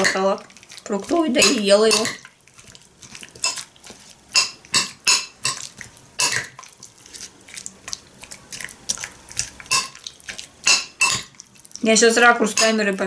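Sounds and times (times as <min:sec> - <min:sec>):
metal spoon clinking glass bowl: 0:04.3 - 0:06.5, 0:09.7 - 0:10.0, 0:10.7 - 0:11.4, 0:12.5 - 0:12.8.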